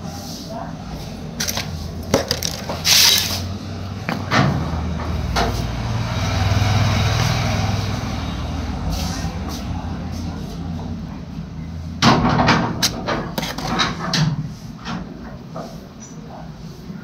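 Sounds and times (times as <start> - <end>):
rustling scrape: 0.0 - 3.5
sharp knocks and clicks: 12.0 - 15.7.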